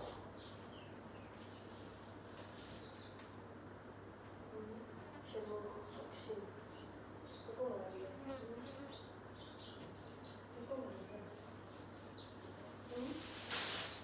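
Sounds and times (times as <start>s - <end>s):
small birds chirping: 0.0s - 3.6s, 4.2s - 14.0s
brief rushing hiss: 13.3s - 14.0s.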